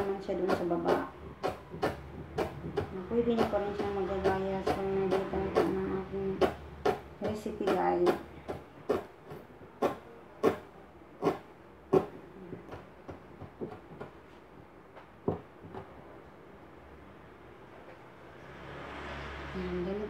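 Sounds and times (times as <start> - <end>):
knife chopping on cutting board: 0.0 - 10.6, 11.2 - 14.2.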